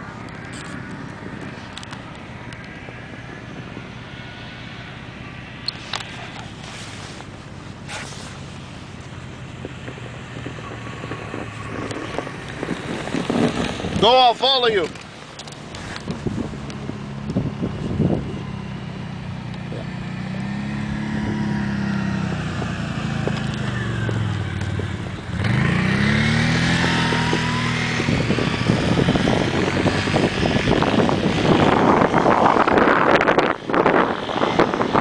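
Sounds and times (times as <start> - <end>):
wind buffeting microphone: 0.0 - 35.0
truck engine revving: 19.2 - 35.0.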